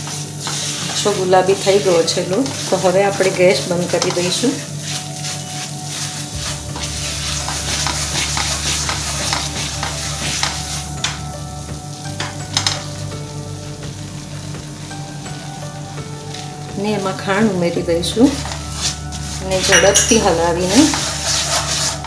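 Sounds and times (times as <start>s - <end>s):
spatula scraping a pan: 0.0s - 11.2s, 18.2s - 22.0s
ghee sizzling: 0.0s - 22.0s.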